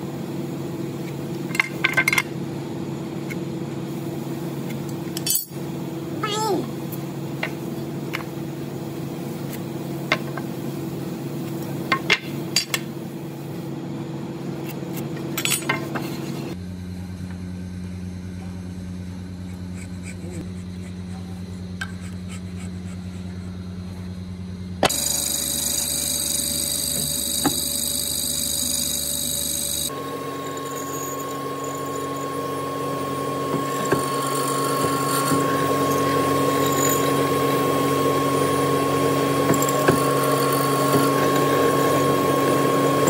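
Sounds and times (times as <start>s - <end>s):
workshop machinery hum: 0.0s - 43.0s
machine motor with high whine: 16.1s - 43.0s.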